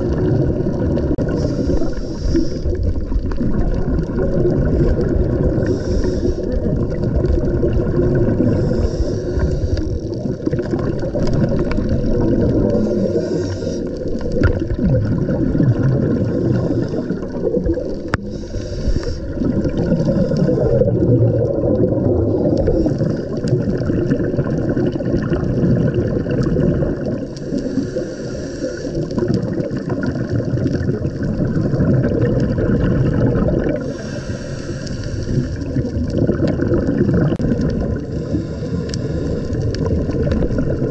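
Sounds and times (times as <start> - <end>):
exhaled bubbles hissing: 0.0 - 40.9
low underwater rumble: 0.0 - 40.9
regulator breathing: 1.2 - 3.0, 5.6 - 6.7, 8.4 - 10.2, 12.6 - 14.4, 18.0 - 20.8, 27.3 - 29.2, 33.8 - 35.8, 38.0 - 40.2.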